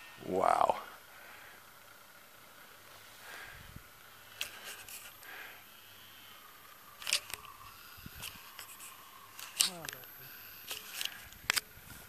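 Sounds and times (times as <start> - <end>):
faint steady hiss: 0.0 - 12.0
wind rumble on microphone: 3.5 - 3.9, 7.9 - 8.5.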